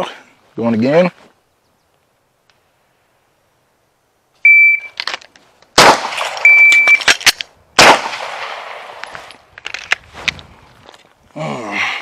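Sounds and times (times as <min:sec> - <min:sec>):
shot timer beep: 0:04.5 - 0:05.0, 0:06.5 - 0:07.1
sharp cracks: 0:05.0 - 0:10.4
pistol shots: 0:05.8 - 0:09.1.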